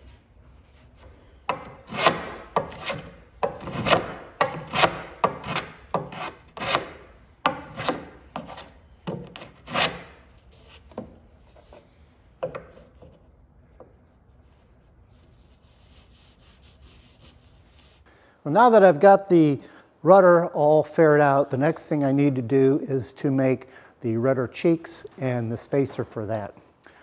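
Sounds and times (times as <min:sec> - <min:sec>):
hand plane shaving wood: 0:01.5 - 0:10.2.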